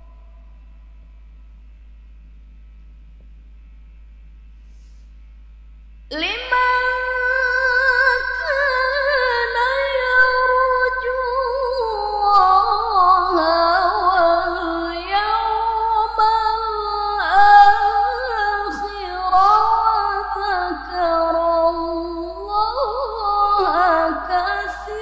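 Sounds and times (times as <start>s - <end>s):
woman reciting melodically: 6.1s - 25.0s.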